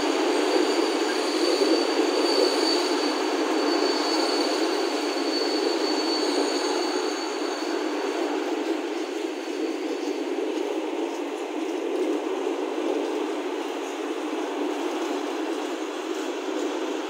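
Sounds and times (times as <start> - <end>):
high wheel squeal: 0.0 - 10.2
train wheels rumbling on rails: 0.0 - 17.0.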